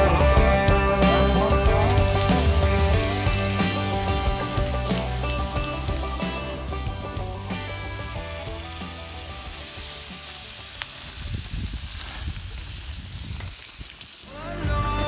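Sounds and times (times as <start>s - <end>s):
song playing: 0.0s - 11.1s, 14.3s - 15.0s
meat sizzling on a grill: 1.0s - 15.0s.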